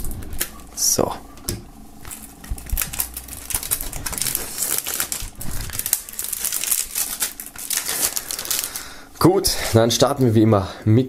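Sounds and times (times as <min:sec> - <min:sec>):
plastic shrink-wrap tearing and crinkling: 0:02.0 - 0:09.0.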